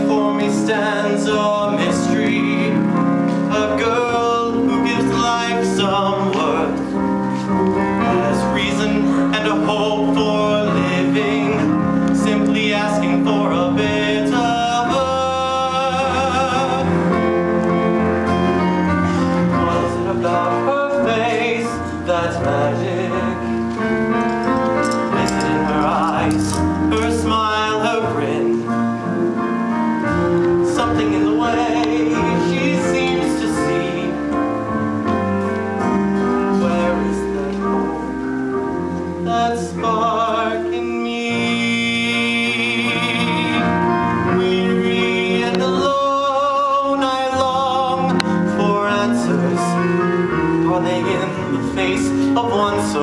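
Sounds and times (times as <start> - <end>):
man singing a slow ballad: 0.0 - 29.3, 30.2 - 34.7, 35.8 - 38.4, 39.0 - 53.0
musical accompaniment: 0.0 - 53.0.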